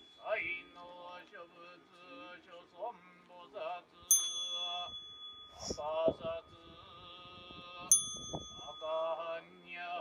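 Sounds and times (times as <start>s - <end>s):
priests chanting in unison: 0.2s - 5.0s, 5.6s - 10.0s
small bell ringing: 4.1s - 10.0s.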